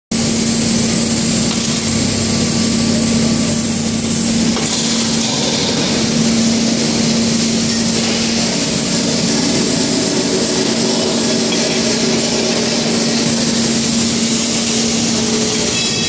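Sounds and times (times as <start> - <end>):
loud machinery with low hum: 0.1 - 16.0.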